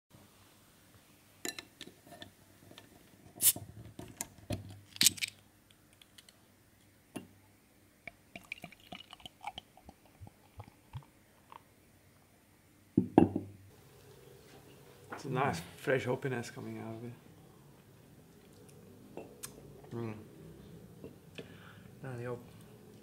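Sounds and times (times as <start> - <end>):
beer pouring into glass: 8.1 - 11.6
fizzing bubbles: 8.1 - 11.6.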